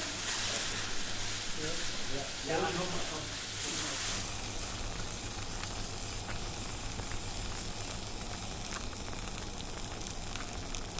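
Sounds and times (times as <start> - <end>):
meat sizzling on hot stone: 0.0 - 10.9
crackles and pops: 4.0 - 10.9.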